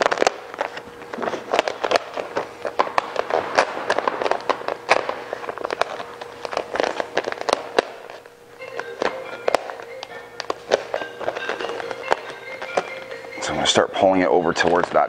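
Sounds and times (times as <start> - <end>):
vinyl film crackling and popping: 0.0 - 13.9.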